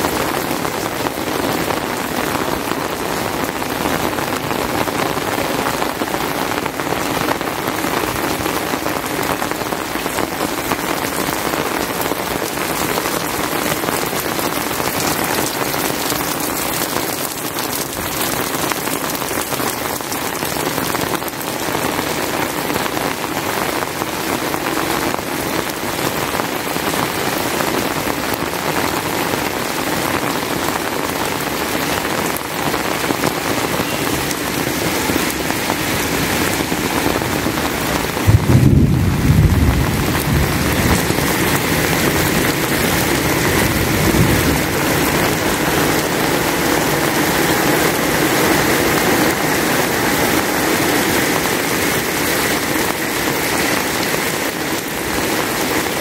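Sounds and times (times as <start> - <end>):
heavy rain hiss: 0.0 - 56.0
raindrops tapping close by: 0.0 - 56.0.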